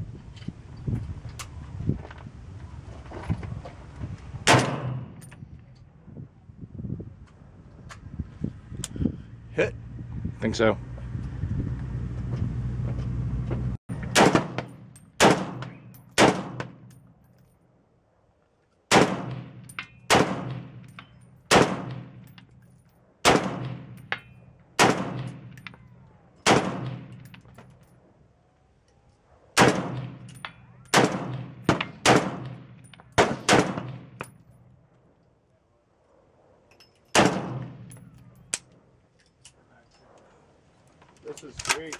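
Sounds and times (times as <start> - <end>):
rifle gunshots: 4.5 - 5.2, 14.1 - 16.9, 18.9 - 20.9, 21.5 - 22.2, 23.2 - 24.0, 24.8 - 25.6, 26.4 - 27.2, 29.6 - 34.2, 37.1 - 38.1.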